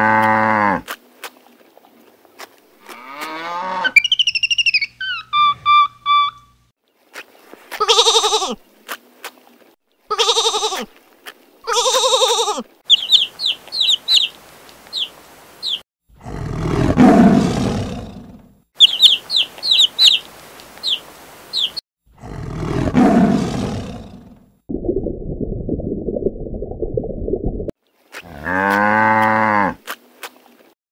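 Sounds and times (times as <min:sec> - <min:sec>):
quick high chirps: 0:12.9 - 0:14.3, 0:18.8 - 0:20.2
tiger roar: 0:16.1 - 0:18.4, 0:22.1 - 0:24.4.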